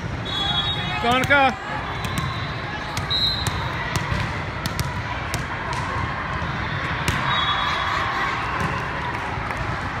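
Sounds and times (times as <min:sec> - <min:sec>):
murmur of crowd: 0:00.0 - 0:10.0
volleyball bouncing on floor: 0:01.0 - 0:07.3
volleyball struck: 0:01.0 - 0:07.4.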